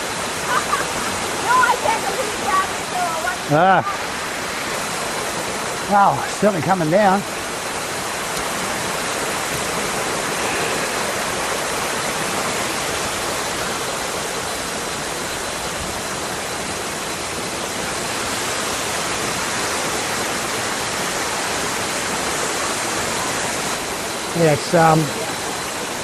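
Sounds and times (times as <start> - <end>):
waterfall rushing over rocks: 0.0 - 26.0.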